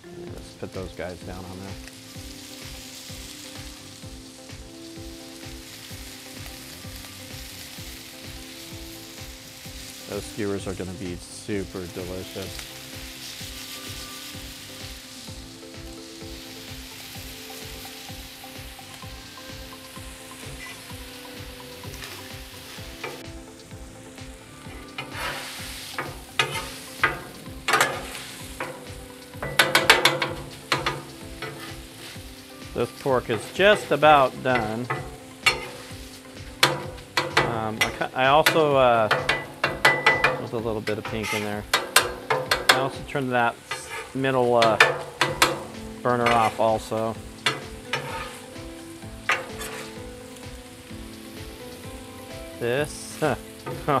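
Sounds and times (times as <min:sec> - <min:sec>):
meat sizzling on a griddle: 0:00.0 - 0:54.0
metal spatula scraping and clacking: 0:24.7 - 0:32.2, 0:32.9 - 0:36.0, 0:36.6 - 0:48.6, 0:49.2 - 0:50.1.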